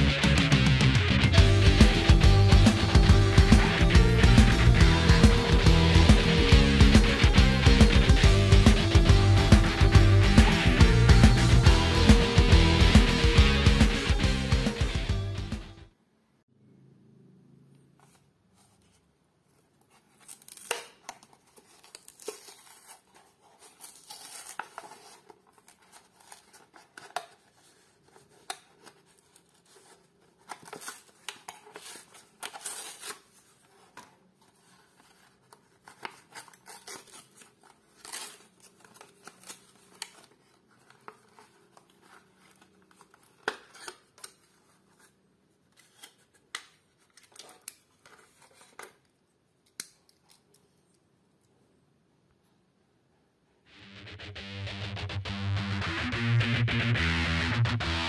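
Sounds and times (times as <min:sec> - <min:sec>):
plastic blister crinkling: 0:19.7 - 0:45.2
cardboard tearing: 0:19.9 - 0:44.8.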